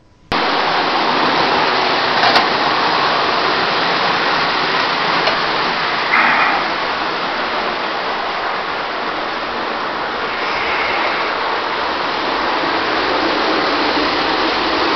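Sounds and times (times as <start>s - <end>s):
toy train rolling rumble: 0.0s - 14.9s.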